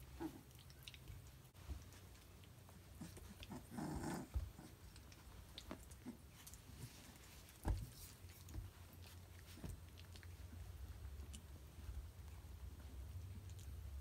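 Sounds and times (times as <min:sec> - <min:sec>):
puppy vocal sound: 0:00.0 - 0:01.3, 0:02.4 - 0:10.5
puppies scuffling: 0:00.0 - 0:14.0.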